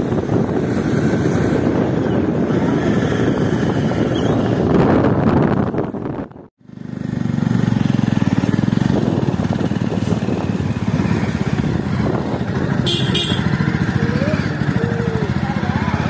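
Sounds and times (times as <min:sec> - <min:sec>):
motorcycle engine running: 0:05.2 - 0:16.0.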